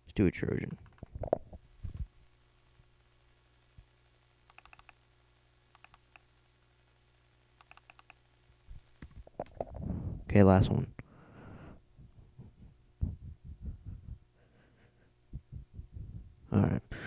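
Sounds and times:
low hum: 0:00.3 - 0:17.0
computer mouse clicks: 0:00.6 - 0:02.0, 0:04.5 - 0:05.0, 0:05.7 - 0:06.3, 0:07.6 - 0:08.2.

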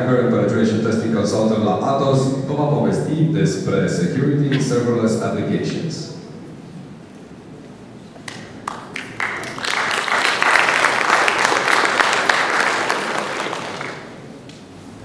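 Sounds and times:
audience applauding: 0:08.2 - 0:14.2.

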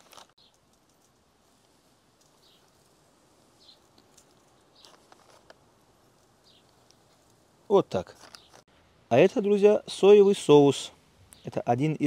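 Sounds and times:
small bird chirping: 0:00.3 - 0:00.7, 0:02.2 - 0:05.1, 0:06.3 - 0:07.3, 0:08.1 - 0:08.7, 0:11.2 - 0:11.7.

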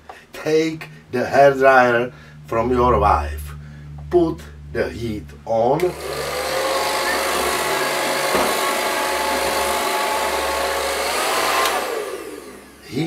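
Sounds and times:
hair dryer blowing: 0:05.8 - 0:12.9.

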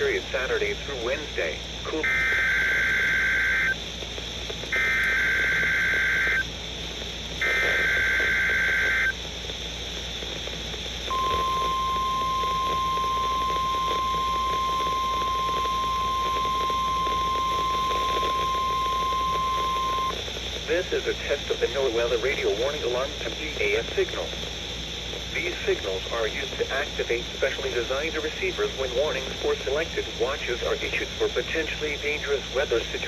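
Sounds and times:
screeching digital data bursts: 0:01.9 - 0:03.8, 0:04.7 - 0:06.5, 0:07.4 - 0:09.2, 0:11.1 - 0:20.9
steady warning alarm tone: 0:01.9 - 0:03.8, 0:04.7 - 0:06.5, 0:07.4 - 0:09.2, 0:11.1 - 0:20.2.

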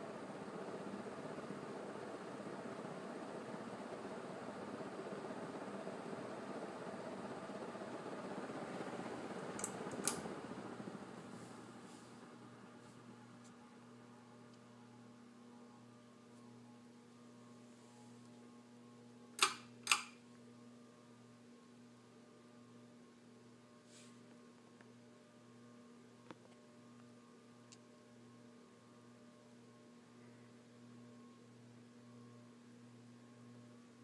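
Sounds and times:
ceiling fan motor hum: 0:00.0 - 0:34.0
pull-chain switch clicks: 0:09.6 - 0:10.2, 0:19.4 - 0:20.2.

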